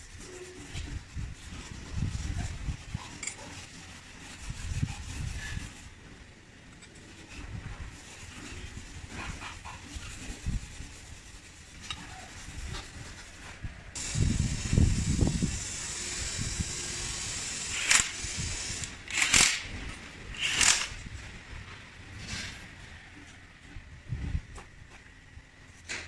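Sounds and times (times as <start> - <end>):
steady hiss: 14.0 - 19.0
cordless power tool on bolts: 14.0 - 19.7, 20.4 - 20.9.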